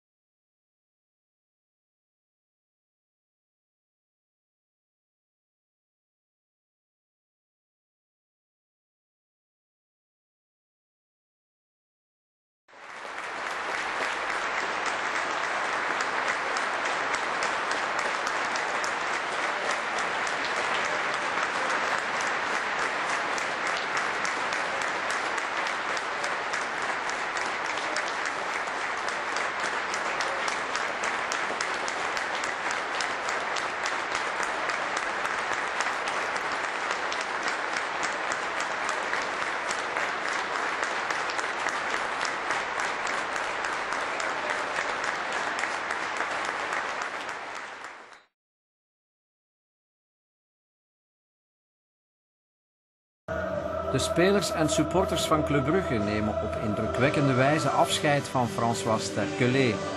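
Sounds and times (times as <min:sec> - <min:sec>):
crowd applauding: 0:12.7 - 0:48.3, 0:53.3 - 0:59.9.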